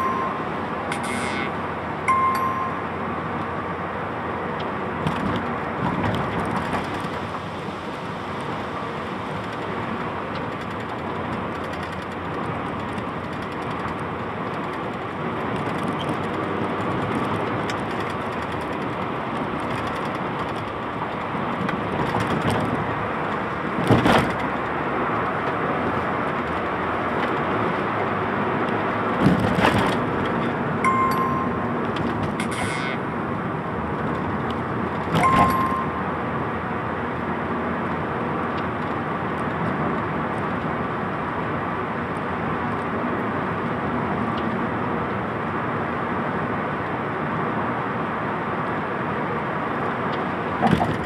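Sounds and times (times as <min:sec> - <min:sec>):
car engine: 0:00.0 - 0:51.0
tyres roaring on road: 0:00.0 - 0:51.0.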